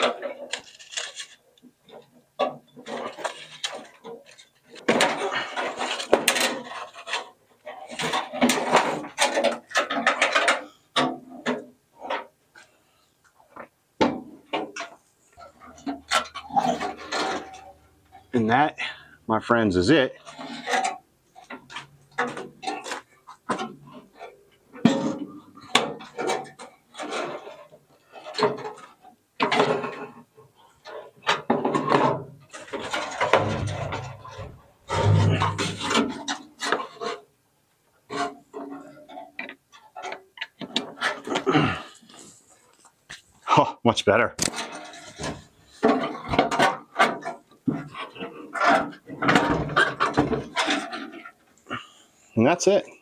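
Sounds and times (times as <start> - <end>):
knocks and scrapes on wood: 20.2 - 37.2, 44.4 - 52.0.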